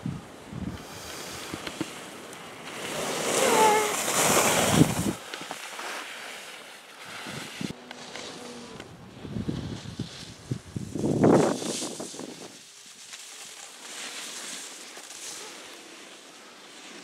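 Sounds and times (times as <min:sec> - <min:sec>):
wind on microphone: 0:00.0 - 0:01.6, 0:03.3 - 0:05.2, 0:08.6 - 0:12.6
skier carving past: 0:00.5 - 0:17.0
skis scraping over snow: 0:00.7 - 0:17.0.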